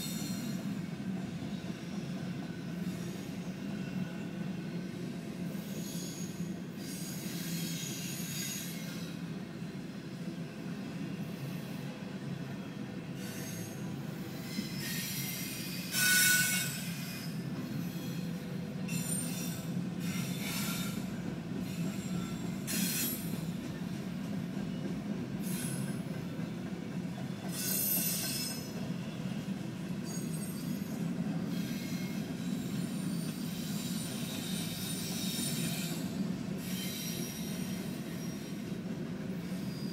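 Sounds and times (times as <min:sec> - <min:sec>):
train wheels rumbling on rails: 0:00.0 - 0:39.9
wheel squeals: 0:05.6 - 0:09.2, 0:13.2 - 0:21.0, 0:27.4 - 0:29.4, 0:30.0 - 0:38.7, 0:39.4 - 0:39.9.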